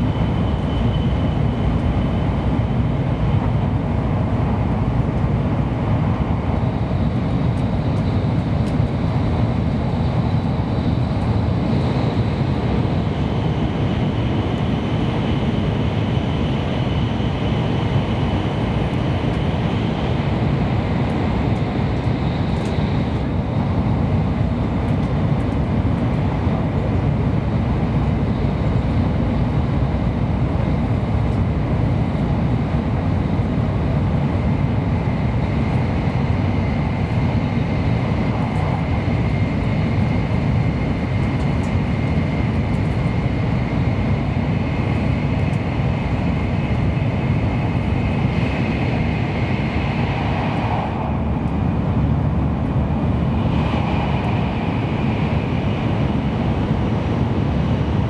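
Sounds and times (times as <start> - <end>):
faint high whine: 0.0 - 2.8.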